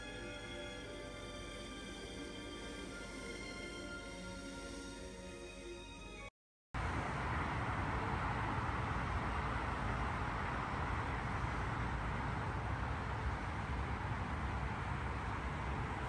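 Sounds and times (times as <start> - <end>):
road traffic passing: 6.8 - 16.0.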